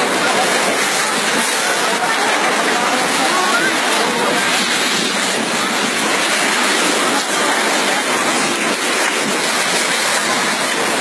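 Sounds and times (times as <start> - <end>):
mud and water rushing: 0.0 - 11.0.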